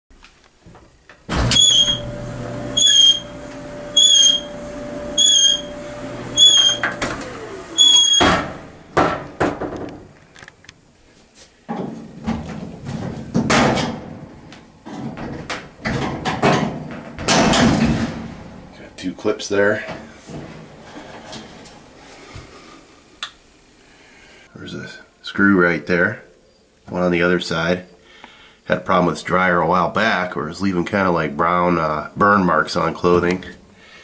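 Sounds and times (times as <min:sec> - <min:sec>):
sharp squeaks: 0:01.3 - 0:03.4, 0:04.0 - 0:04.6, 0:05.2 - 0:07.0, 0:07.8 - 0:08.4
clothes dryer motor humming: 0:01.3 - 0:09.4
knocks and clatter: 0:11.7 - 0:18.8.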